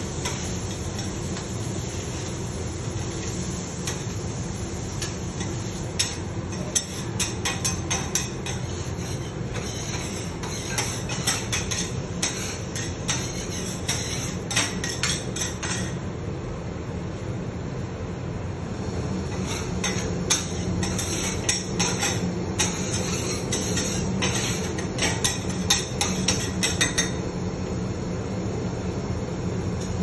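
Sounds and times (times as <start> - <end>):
metal utensils clacking on griddle: 0.2 - 1.2, 5.0 - 16.0, 19.3 - 27.2.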